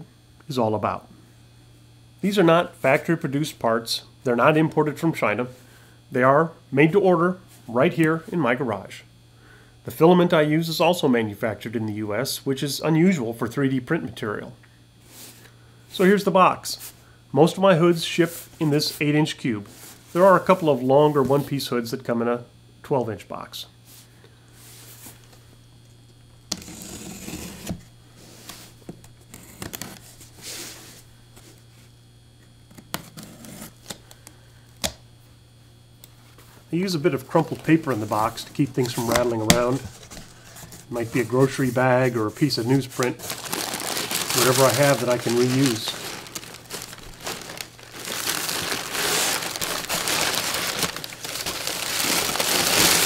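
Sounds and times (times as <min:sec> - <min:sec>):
cardboard rustling: 0:37.3 - 0:53.0
packing tape ripping: 0:43.2 - 0:53.0.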